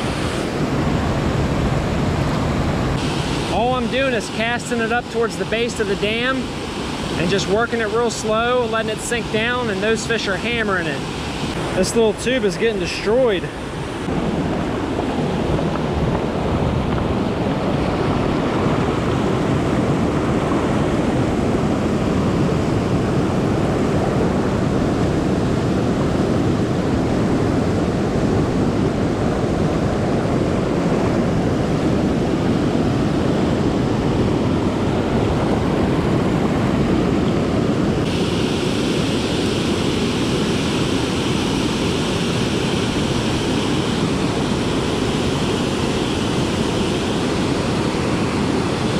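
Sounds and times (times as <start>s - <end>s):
water rushing over rapids: 0.0s - 48.9s.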